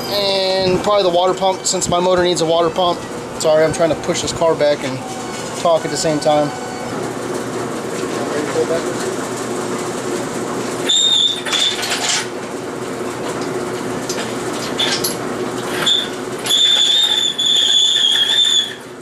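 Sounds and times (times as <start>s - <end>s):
thin high caster squeal: 4.8s - 7.0s, 15.7s - 18.9s.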